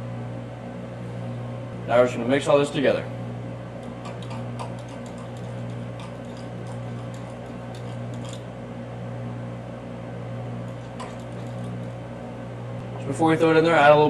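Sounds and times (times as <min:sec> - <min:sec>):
steady low hum: 0:00.0 - 0:14.0
metal tool scraping glass cup: 0:03.9 - 0:08.5, 0:10.7 - 0:11.9.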